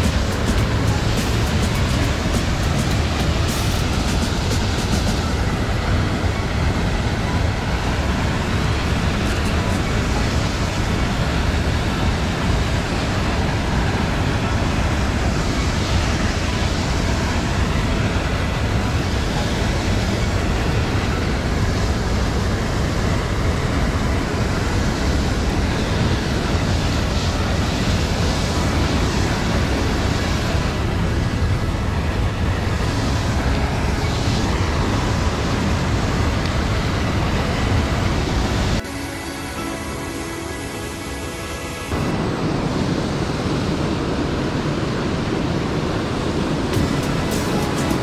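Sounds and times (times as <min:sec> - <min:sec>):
whitewater rushing: 0:00.0 - 0:48.0.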